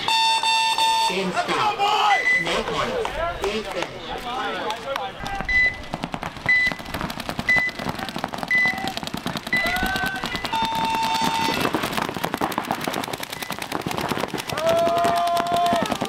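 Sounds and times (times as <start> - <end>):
short electronic beeps: 0.0 - 1.2, 2.2 - 2.6, 5.4 - 5.8, 6.5 - 6.8, 8.5 - 8.8, 9.5 - 11.6
paintball markers popping: 4.6 - 16.0
long buzzer: 10.5 - 11.6.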